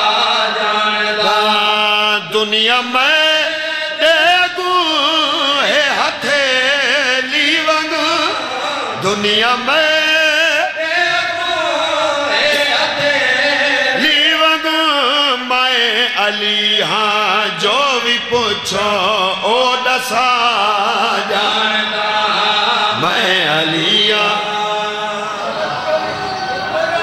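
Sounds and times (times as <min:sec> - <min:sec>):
man singing devotional song: 0:00.0 - 0:26.0.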